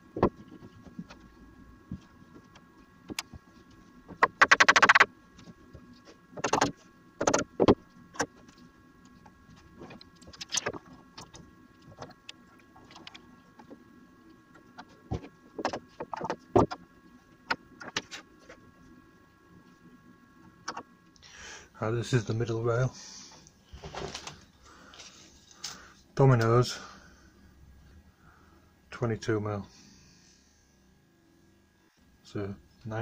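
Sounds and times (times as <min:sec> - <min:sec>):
sharp knocks of wood and metal: 0:06.4 - 0:08.3, 0:15.1 - 0:16.8.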